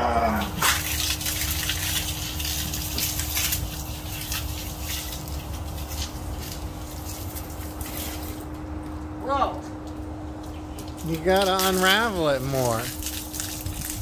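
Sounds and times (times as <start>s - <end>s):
garden hose spraying water: 0.3s - 8.9s, 10.4s - 14.0s.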